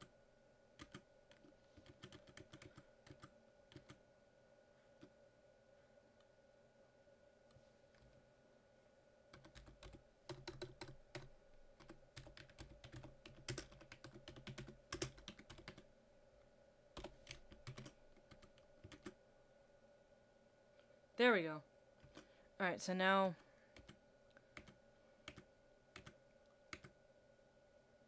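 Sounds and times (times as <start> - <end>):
typing on computer keyboard: 0.8 - 4.0, 9.3 - 15.8, 17.0 - 19.2, 23.7 - 26.9.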